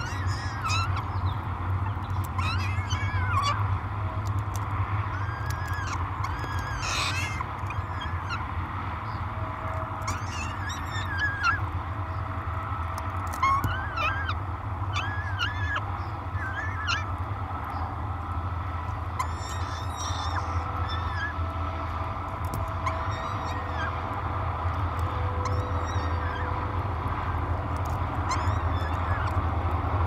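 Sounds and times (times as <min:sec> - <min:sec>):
falcon chick begging calls: 0:00.0 - 0:03.7, 0:05.0 - 0:08.5, 0:10.0 - 0:11.7, 0:13.0 - 0:17.2, 0:19.1 - 0:21.5, 0:22.5 - 0:24.1, 0:24.7 - 0:26.8, 0:27.8 - 0:29.4
steady low hum: 0:00.0 - 0:30.0.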